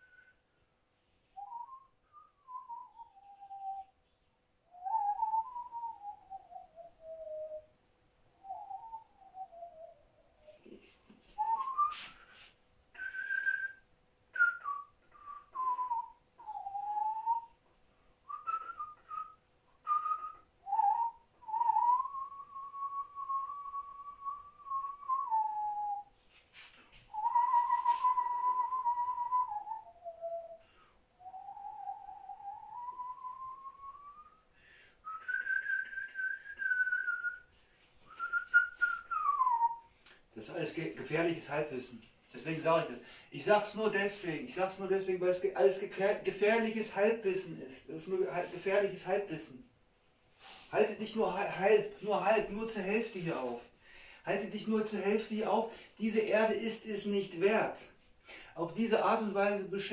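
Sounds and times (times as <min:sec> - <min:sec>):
person whistling a tune: 0:01.4 - 0:03.9, 0:04.8 - 0:07.7, 0:11.4 - 0:13.8, 0:14.4 - 0:17.5, 0:18.3 - 0:26.1, 0:27.1 - 0:40.2, 0:50.4 - 0:50.7.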